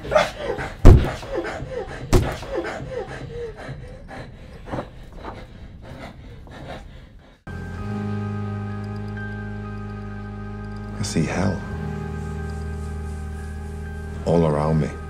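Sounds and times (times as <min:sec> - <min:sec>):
person gasping cries: 0:00.0 - 0:03.8
heavy thuds: 0:00.6 - 0:03.3.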